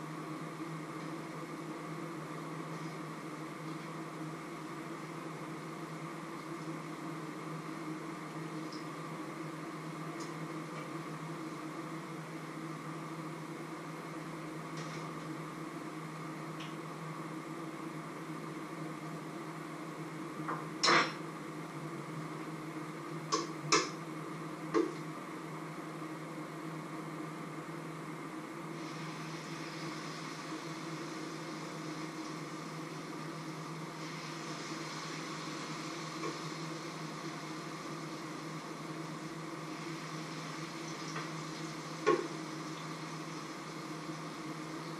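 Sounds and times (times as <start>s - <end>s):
food sizzling in a pan: 28.8s - 44.4s.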